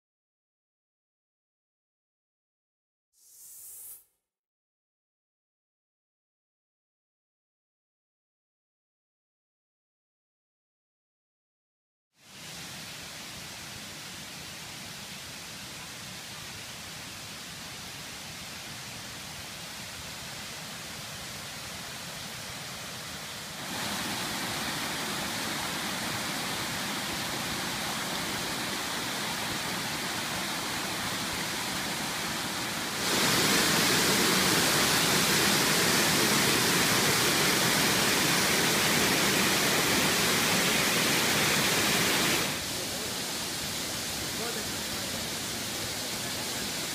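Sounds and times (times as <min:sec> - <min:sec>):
waterfall rushing over rocks: 0:12.2 - 0:46.9.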